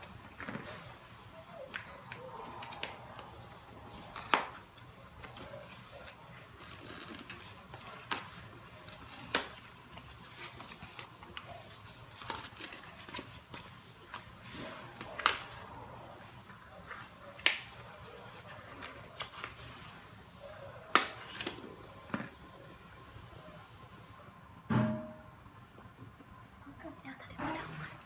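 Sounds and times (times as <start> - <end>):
paper packaging tearing and rustling: 2.4 - 20.2.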